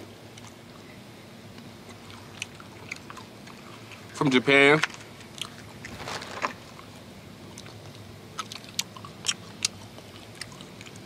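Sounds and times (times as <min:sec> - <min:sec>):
gum chewing clicks and smacks: 0:00.3 - 0:00.8, 0:01.5 - 0:05.9, 0:06.7 - 0:11.0.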